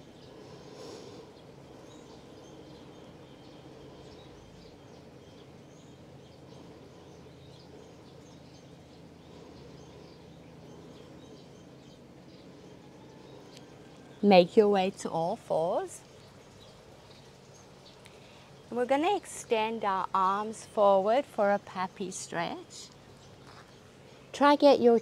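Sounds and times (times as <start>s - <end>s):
low steady hum: 0.0s - 25.0s
small birds chirping: 0.0s - 25.0s.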